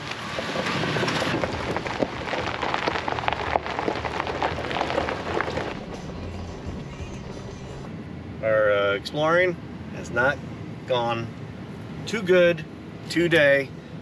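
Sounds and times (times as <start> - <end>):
tyres rolling over gravel: 0.0 - 7.8.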